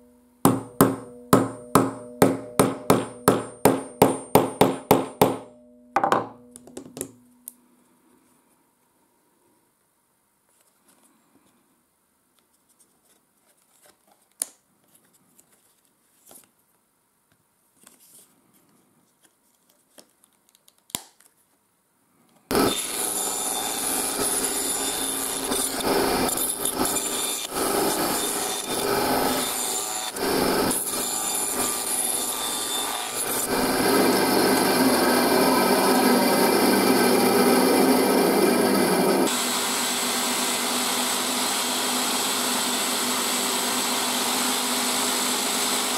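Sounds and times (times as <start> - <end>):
band saw running: 22.5 - 45.9
buffing wheel motor: 33.4 - 45.9.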